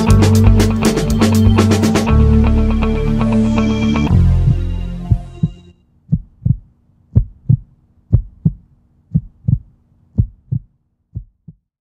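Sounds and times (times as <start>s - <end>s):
heartbeat thumps: 4.4s - 11.7s.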